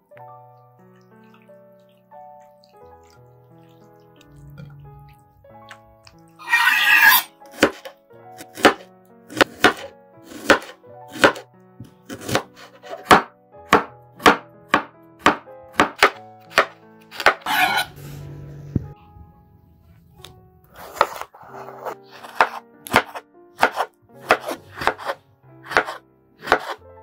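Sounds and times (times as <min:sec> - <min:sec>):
knife chopping on cutting board: 0:07.1 - 0:17.9, 0:20.8 - 0:26.8.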